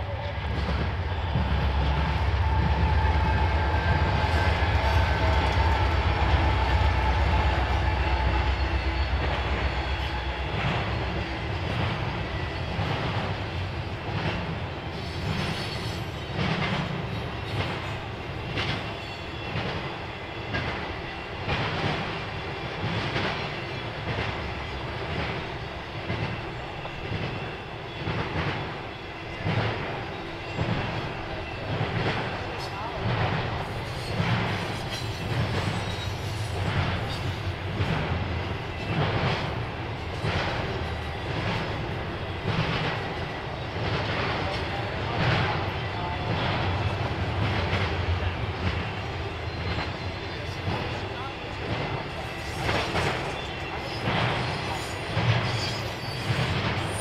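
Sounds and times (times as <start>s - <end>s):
locomotive engine rumble: 0.0s - 15.5s
train wheels clickety-clack: 0.0s - 57.0s.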